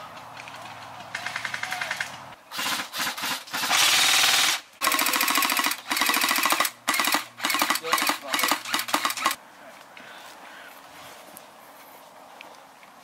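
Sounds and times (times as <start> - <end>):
airsoft rifles firing full-auto bursts: 1.1 - 9.4.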